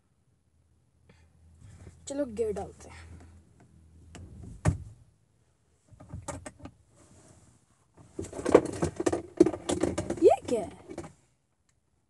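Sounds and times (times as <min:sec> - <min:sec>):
rattles: 0:08.0 - 0:11.2.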